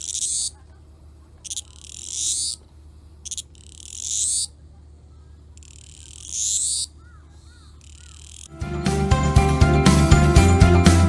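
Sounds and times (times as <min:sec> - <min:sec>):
cicada buzzing: 0:00.0 - 0:00.6, 0:01.4 - 0:04.6, 0:05.5 - 0:08.5
faint chirps: 0:00.0 - 0:08.5
music: 0:08.5 - 0:11.0.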